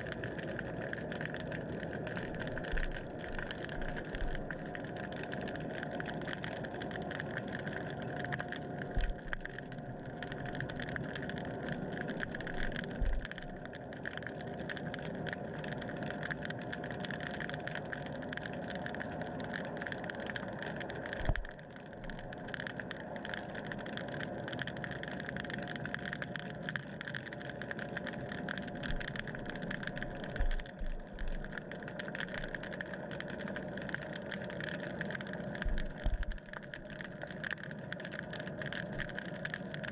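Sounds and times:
thin steady whine: 0.0 - 16.0, 27.8 - 38.0
underwater motor hum: 0.0 - 39.9.

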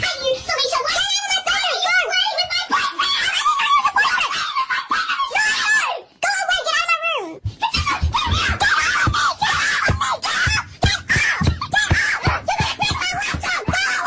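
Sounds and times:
children screaming and shouting: 0.0 - 14.0
children laughing: 2.6 - 5.8, 7.6 - 14.0.

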